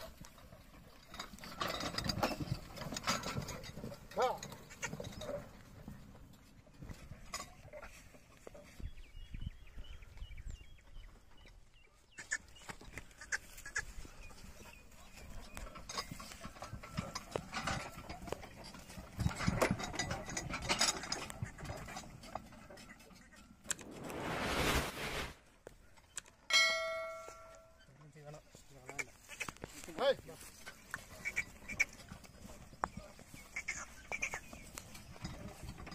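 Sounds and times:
ox cart rattling and knocking: 0.0 - 8.9, 13.9 - 23.7, 27.4 - 35.9.

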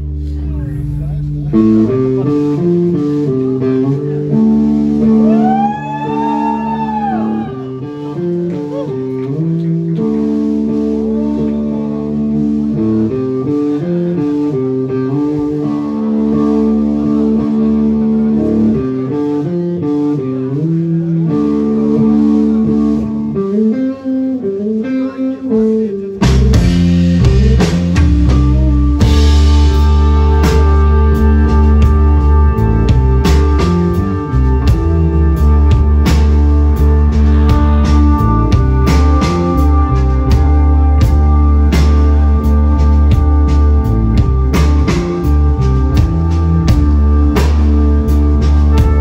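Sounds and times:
bass guitar: 0.0 - 49.0
electric guitar melody: 0.0 - 49.0
drums and cymbals: 26.2 - 49.0.

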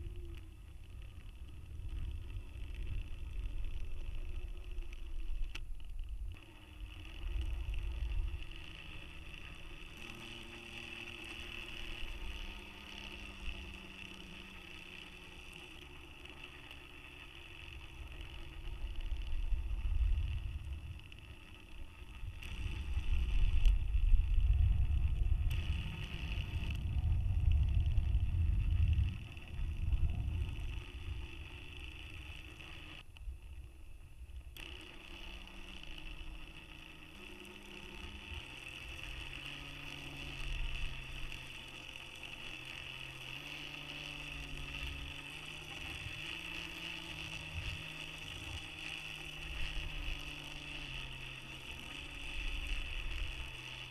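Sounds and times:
faint high whine: 0.0 - 53.9
small motor humming: 0.0 - 53.9
low rumble: 18.8 - 34.5.

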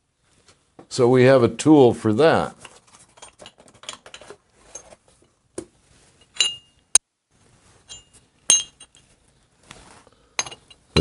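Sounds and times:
metal parts clinking: 2.6 - 5.0, 6.2 - 6.8, 7.8 - 9.1, 10.4 - 10.9.

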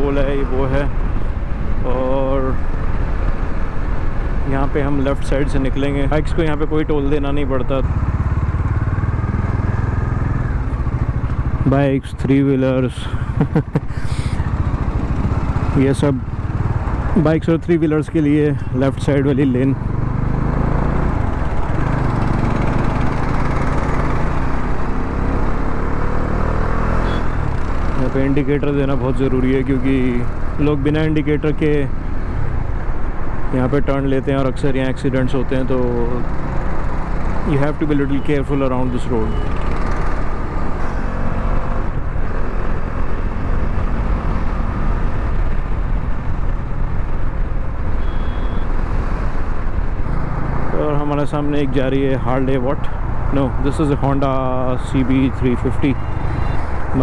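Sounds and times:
motorcycle engine cruising: 0.0 - 57.0
road noise: 0.0 - 57.0
motorcycle engine running: 7.2 - 17.5, 19.0 - 31.0.

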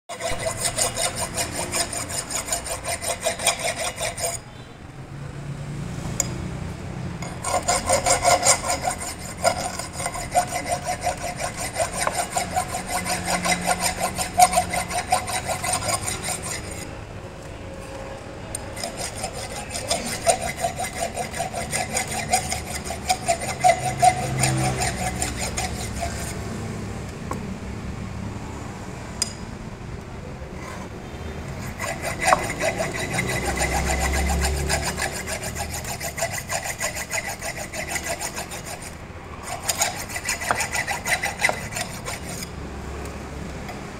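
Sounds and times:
metal file rasping on steel: 0.1 - 4.6, 7.2 - 17.0, 18.5 - 26.5, 30.5 - 42.6.

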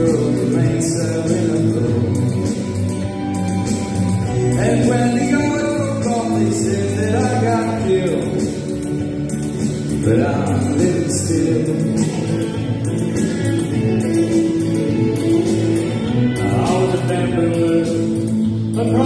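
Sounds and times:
man singing into a microphone: 0.0 - 2.6, 4.2 - 8.7, 10.0 - 12.3, 16.4 - 19.0
backing track with held chords: 0.0 - 19.0.

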